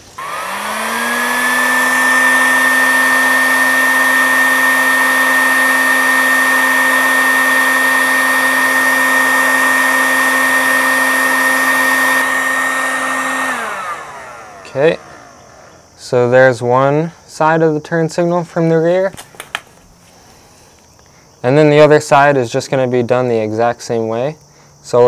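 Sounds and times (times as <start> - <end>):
heat gun fan whine: 0.0 - 16.5, 19.1 - 21.0.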